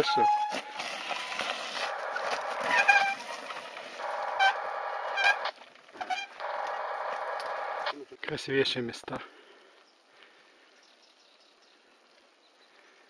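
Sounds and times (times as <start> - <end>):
bike tyres rattling on dirt: 0.0 - 7.9
brakes squealing: 0.0 - 8.1.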